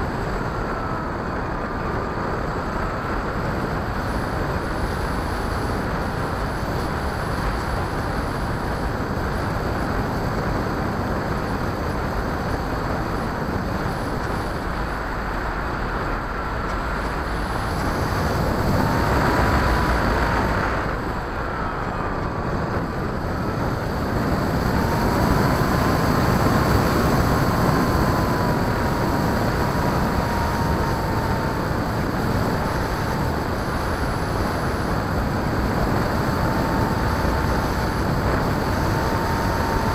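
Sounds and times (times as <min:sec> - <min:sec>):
propeller whine: 0:00.0 - 0:39.9.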